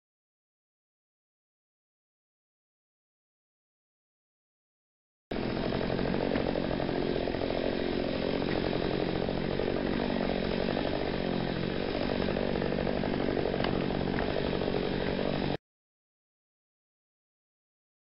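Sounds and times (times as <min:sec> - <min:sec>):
chainsaw running: 0:05.3 - 0:15.6.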